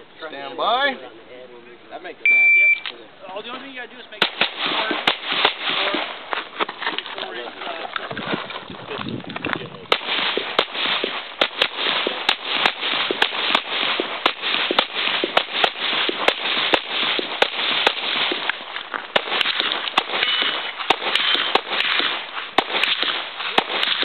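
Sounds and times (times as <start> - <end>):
handgun shots: 4.2 - 6.1, 9.9 - 24.0.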